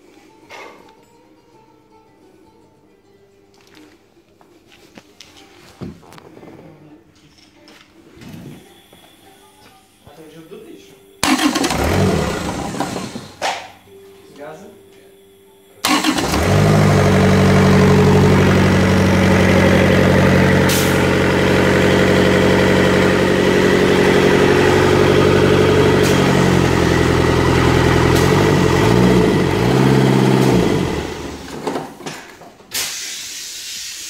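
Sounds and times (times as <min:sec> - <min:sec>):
engine starting and running: 0:11.2 - 0:13.4, 0:15.8 - 0:32.2
brief hiss: 0:20.7 - 0:21.0, 0:32.7 - 0:34.0.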